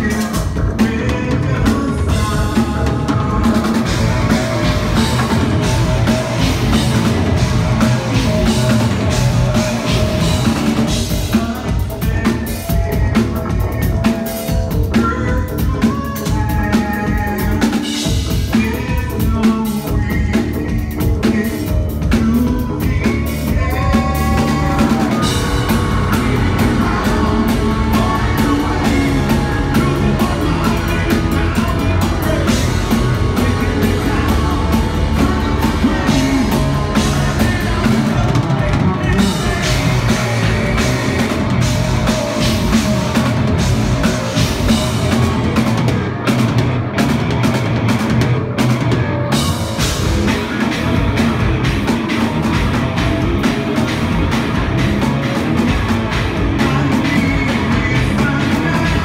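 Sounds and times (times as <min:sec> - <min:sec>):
man singing: 0:00.0 - 0:46.3, 0:49.0 - 0:59.0
metal band playing live: 0:00.0 - 0:59.0.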